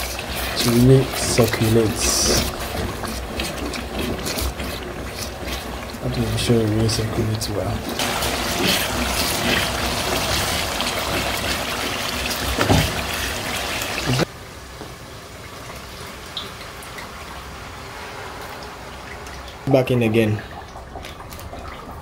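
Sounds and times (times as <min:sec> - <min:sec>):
rice and water pouring: 0:00.0 - 0:14.3, 0:15.2 - 0:22.0
stew sizzling in a pot: 0:00.0 - 0:14.3.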